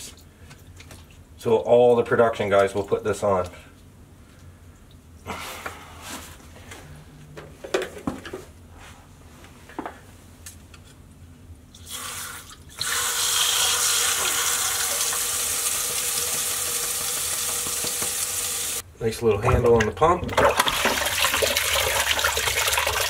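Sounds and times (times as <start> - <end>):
knocks and clinks of pump handling: 7.4 - 8.5.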